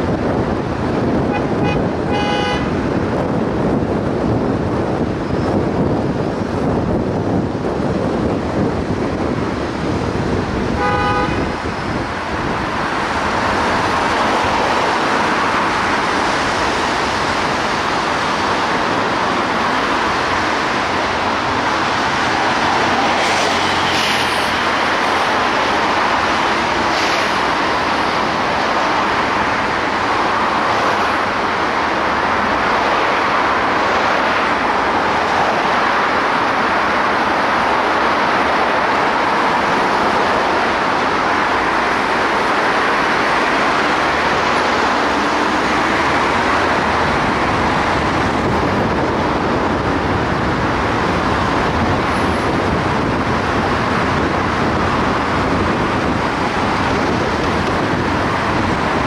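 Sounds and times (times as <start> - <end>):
city traffic noise: 0.0 - 59.0
car horn toot: 1.3 - 2.8, 10.8 - 11.6.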